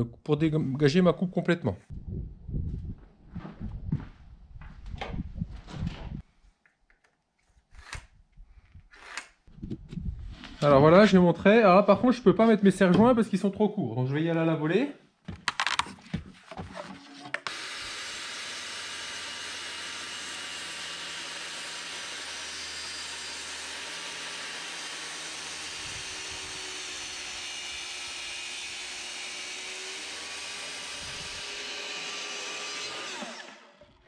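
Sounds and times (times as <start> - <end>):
circular saw cutting wood: 17.0 - 34.0.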